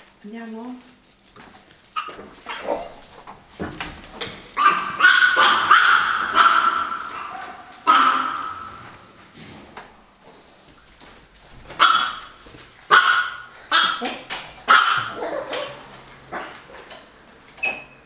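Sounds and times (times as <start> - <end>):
dog barking: 2.0 - 3.0, 4.6 - 9.0, 11.8 - 16.6.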